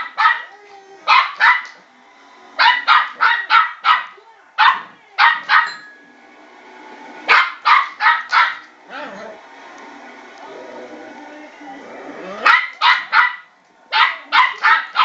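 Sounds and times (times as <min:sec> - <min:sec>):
puppy barking: 0:00.0 - 0:00.5, 0:01.1 - 0:01.8, 0:02.6 - 0:05.8, 0:07.3 - 0:09.1, 0:12.4 - 0:15.0.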